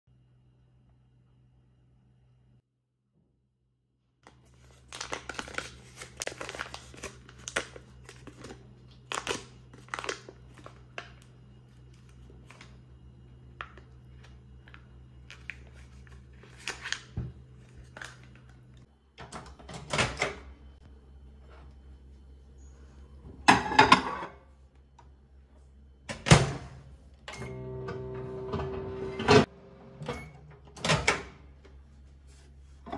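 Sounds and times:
microwave oven humming: 0:04.2 - 0:32.9
foil rustling: 0:04.3 - 0:12.8.

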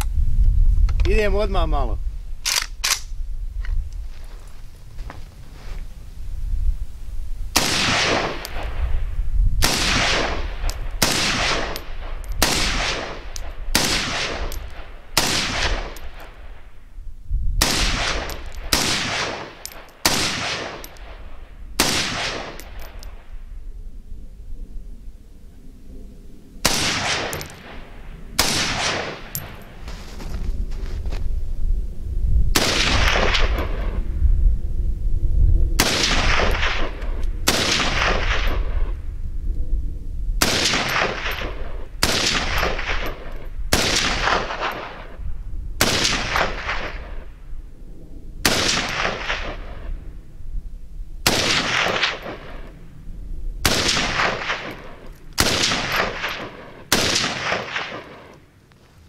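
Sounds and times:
rifle shots echoing: 0:07.6 - 0:09.0, 0:09.6 - 0:16.7, 0:17.6 - 0:23.3, 0:26.6 - 0:29.9, 0:32.6 - 0:34.0, 0:35.8 - 0:39.0, 0:40.4 - 0:45.2, 0:45.8 - 0:47.4, 0:48.4 - 0:50.1, 0:51.2 - 0:52.8, 0:53.6 - 0:58.5.

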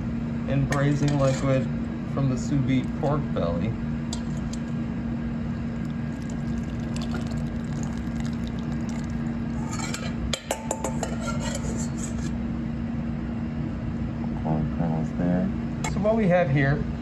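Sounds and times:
low hum: 0:01.7 - 0:10.4
liquid pouring into bowl: 0:05.7 - 0:10.0.

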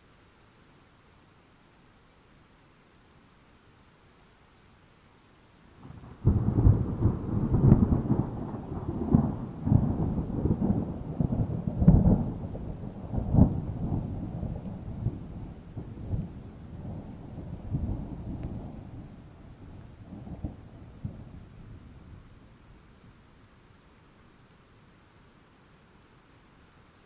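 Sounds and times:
thunder rumbling: 0:05.8 - 0:22.3
thunder cracks: 0:06.2 - 0:12.5.

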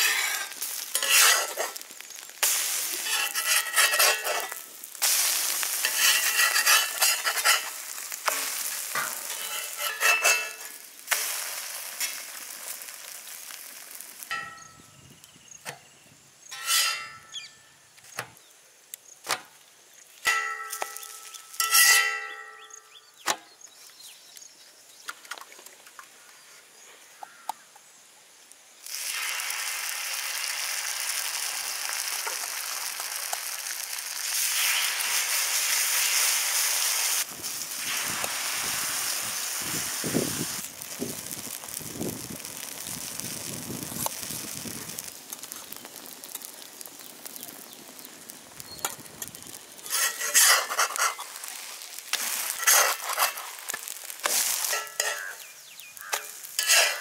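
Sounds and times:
metal spatula scraping a pan: 0:00.0 - 0:01.8, 0:02.4 - 0:11.4, 0:16.5 - 0:17.6, 0:20.2 - 0:22.8, 0:49.2 - 0:57.0
steady hiss: 0:00.0 - 0:22.0, 0:25.8 - 0:57.0
food sizzling in a pan: 0:00.0 - 0:23.1, 0:26.8 - 0:57.0.

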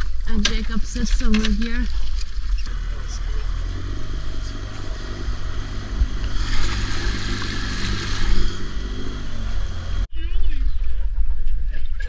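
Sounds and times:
outboard motor running: 0:02.0 - 0:10.1
water rushing along hull: 0:03.7 - 0:10.1.

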